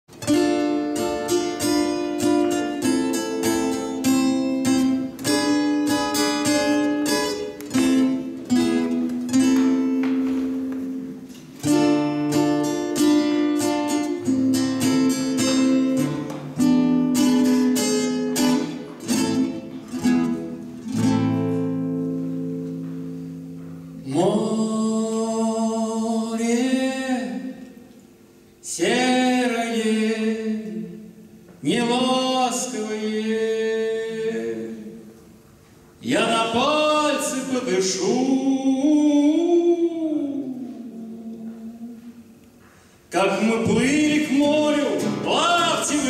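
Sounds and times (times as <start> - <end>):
fingerpicked acoustic guitar: 0.1 - 29.0, 30.4 - 46.0
man singing: 24.0 - 27.8, 28.6 - 35.2, 36.0 - 42.4, 43.1 - 46.0.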